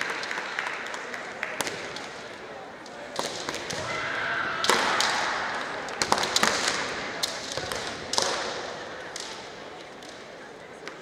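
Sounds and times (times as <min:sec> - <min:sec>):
people shouting: 0:03.8 - 0:05.6.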